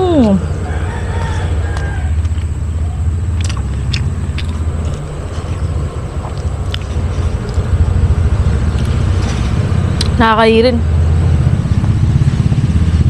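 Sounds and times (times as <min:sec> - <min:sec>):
vehicle engine rumbling: 0:00.0 - 0:13.0
chewing clicks: 0:03.3 - 0:07.7.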